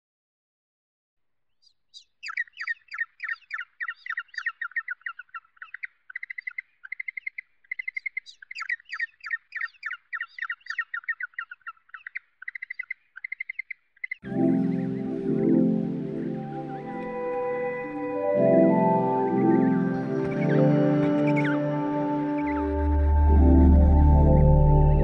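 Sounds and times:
bird chirping: 0:01.5 - 0:25.0
bird trills: 0:01.6 - 0:15.4.

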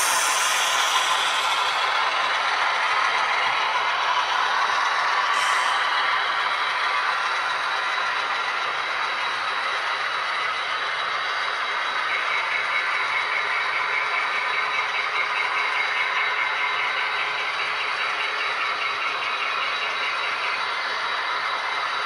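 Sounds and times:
model train wheels rolling: 0:00.0 - 0:13.7.

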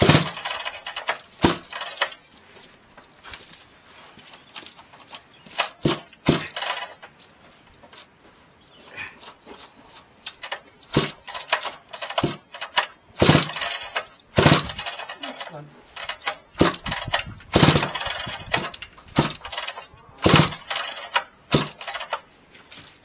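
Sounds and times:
chainsaw recoil starter rasping: 0:00.0 - 0:02.2, 0:05.5 - 0:07.1, 0:10.3 - 0:22.3.

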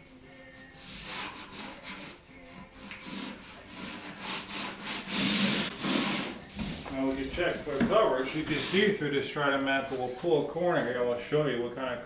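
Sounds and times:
hand float scraping plastic membrane: 0:02.8 - 0:09.0.

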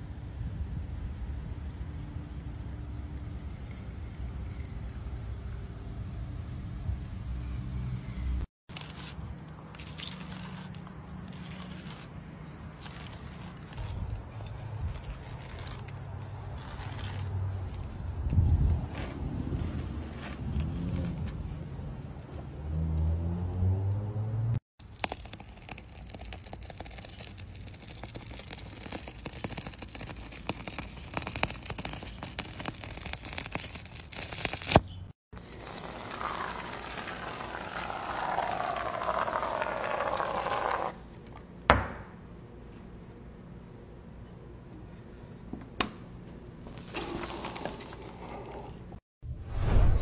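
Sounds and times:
blade slicing rubbery sheet: 0:08.7 - 0:17.9, 0:35.4 - 0:41.0.

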